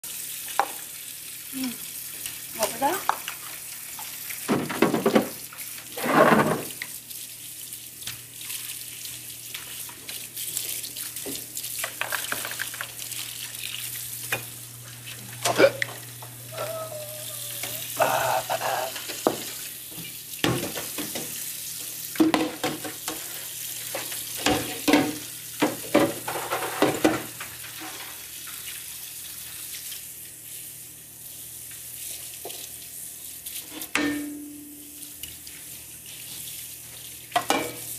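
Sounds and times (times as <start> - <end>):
tap running into sink: 4.0 - 5.4, 19.0 - 21.4, 22.2 - 23.3.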